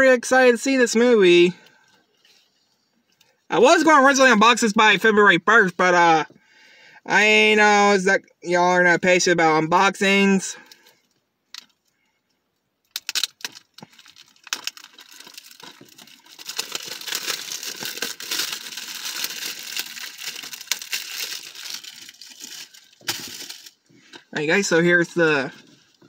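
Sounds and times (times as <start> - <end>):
plastic shrink-wrap crinkling: 12.8 - 26.0.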